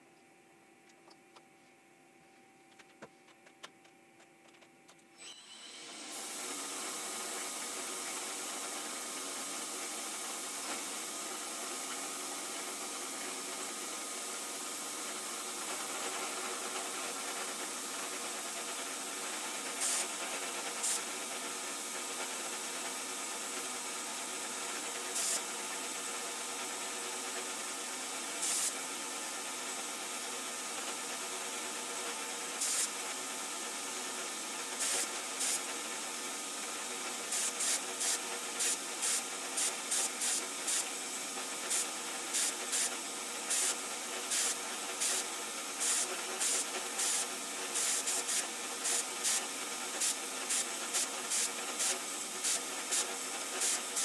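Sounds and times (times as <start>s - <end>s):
faint machine hum: 0.0s - 54.0s
coolant spray hissing: 19.7s - 20.2s, 25.1s - 25.4s, 28.4s - 28.8s, 32.6s - 33.0s, 34.8s - 35.7s, 37.2s - 54.0s
sharp hiss spurts: 19.8s - 20.1s, 32.6s - 33.0s, 34.8s - 35.7s, 37.3s - 54.0s.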